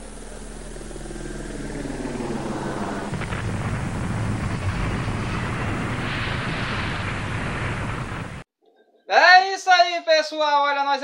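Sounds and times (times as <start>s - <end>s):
deep rumble: 0.0s - 8.4s
rumble of noise: 0.0s - 8.5s.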